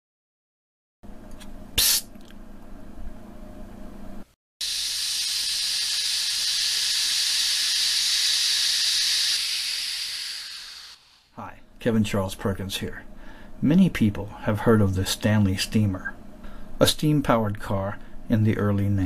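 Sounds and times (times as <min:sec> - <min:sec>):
short sharp burst: 0:04.6 - 0:11.3
steam hissing: 0:04.6 - 0:11.4.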